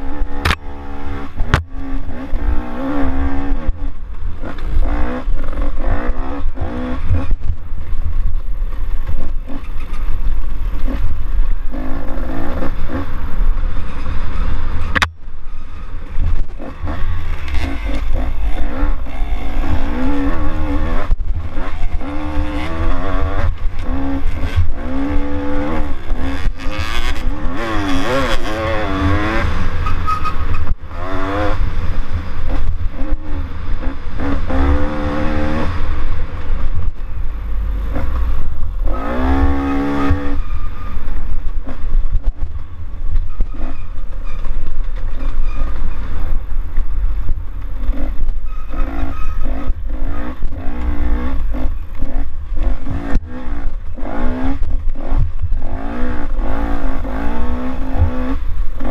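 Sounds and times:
dirt bike engine revving: 0.0s - 7.6s, 10.8s - 37.0s, 37.6s - 44.2s, 47.8s - 58.9s
wind rumble on microphone: 0.0s - 58.9s.

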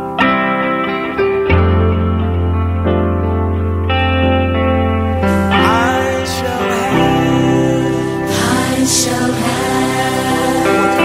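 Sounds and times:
held instrumental chords: 0.0s - 11.0s
gliding melodic line: 0.1s - 11.0s
steady bass: 1.2s - 11.0s
christian song playing: 4.8s - 11.0s.

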